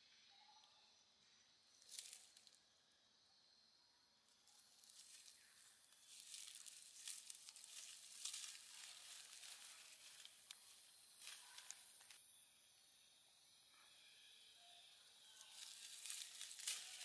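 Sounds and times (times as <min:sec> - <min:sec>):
rustling of dry leaf litter: 0:01.9 - 0:02.6, 0:04.5 - 0:12.3, 0:15.3 - 0:17.0.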